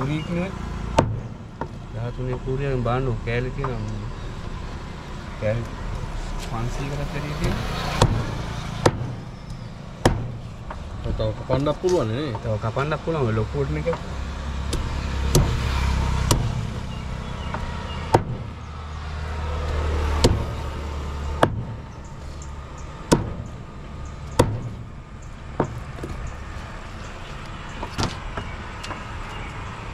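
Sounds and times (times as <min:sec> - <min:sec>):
cleaver chopping fish: 0:13.9 - 0:16.8, 0:19.7 - 0:20.6.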